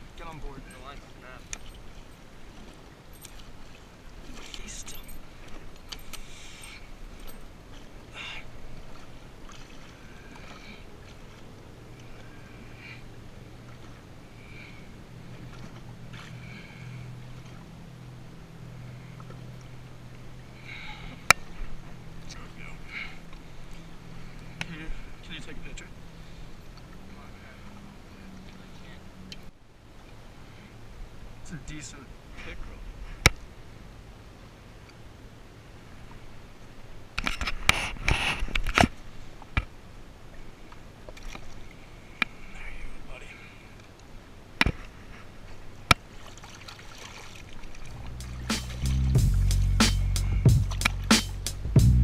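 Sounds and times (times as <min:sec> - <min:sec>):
fish splashing in water: 0:45.9 - 0:48.9
jet ski engine idling: 0:48.0 - 0:52.0.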